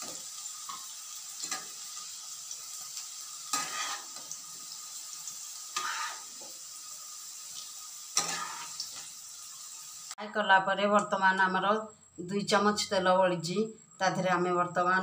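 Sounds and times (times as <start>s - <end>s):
green beans sizzling in oil: 0.0s - 10.2s
spatula scraping a pan: 3.5s - 4.4s, 5.6s - 6.6s, 8.1s - 9.0s.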